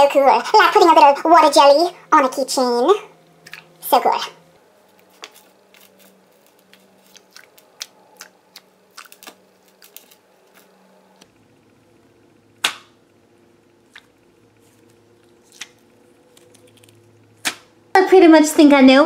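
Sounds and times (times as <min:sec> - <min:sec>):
squishy toy snap: 0:12.6 - 0:13.0.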